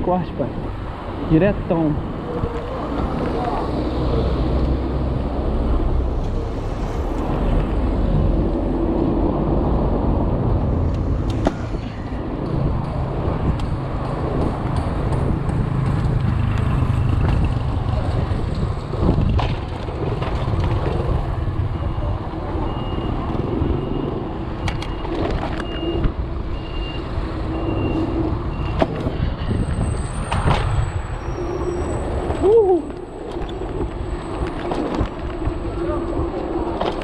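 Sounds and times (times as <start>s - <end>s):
car traffic: 0.0s - 37.0s
rushing wind: 0.0s - 37.0s
bike tyre rumble on asphalt: 2.0s - 21.8s.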